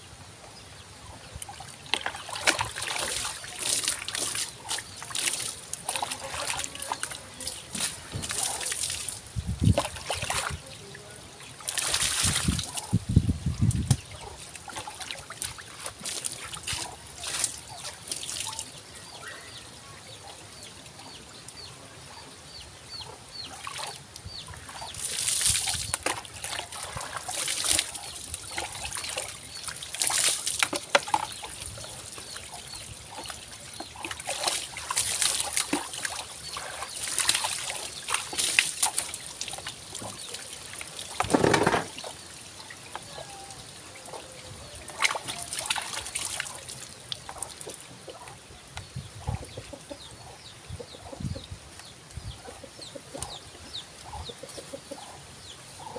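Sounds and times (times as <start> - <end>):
water trickling and dripping: 1.3 - 19.6, 22.9 - 41.3, 41.9 - 49.9
water splashing from dipper: 1.5 - 13.0, 13.7 - 19.2, 23.3 - 47.8.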